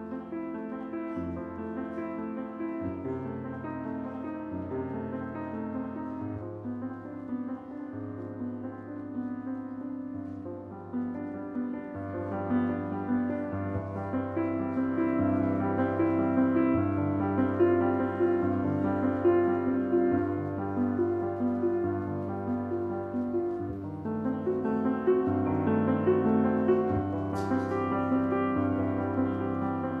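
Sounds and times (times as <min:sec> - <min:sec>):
solo grand piano chords: 0:00.0 - 0:30.0.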